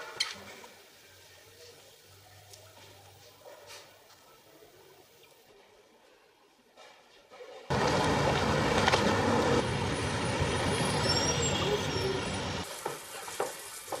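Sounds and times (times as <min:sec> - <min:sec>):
street traffic: 0:07.7 - 0:14.0.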